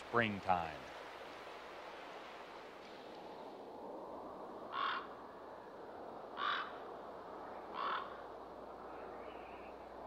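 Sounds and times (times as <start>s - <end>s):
faint rushing hiss: 0.0s - 5.9s.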